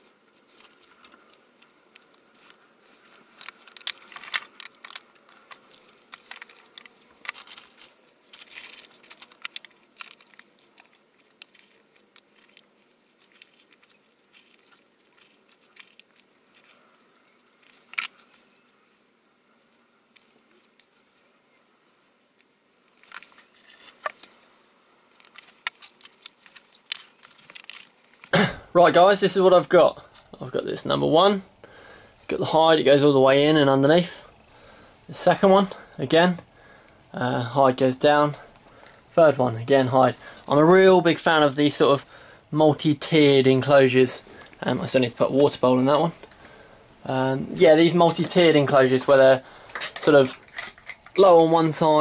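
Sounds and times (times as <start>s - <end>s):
plastic tubs rustling and crinkling: 0.0s - 21.4s, 22.0s - 28.5s.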